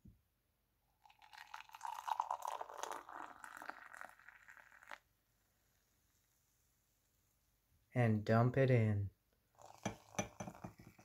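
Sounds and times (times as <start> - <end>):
coffee pouring with crackles: 1.0 - 5.1, 9.5 - 11.0.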